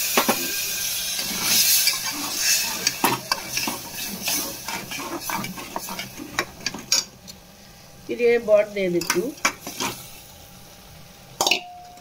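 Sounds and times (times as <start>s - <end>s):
light sizzle: 0.0s - 12.0s
metal spatula scraping pot: 1.2s - 7.0s.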